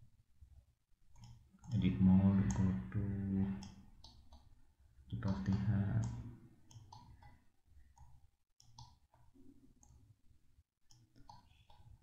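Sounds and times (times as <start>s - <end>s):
computer mouse clicks: 1.1s - 1.8s, 2.4s - 2.8s, 3.6s - 4.5s, 5.3s - 10.1s, 10.9s - 12.0s
keyboard clicks: 1.1s - 1.8s.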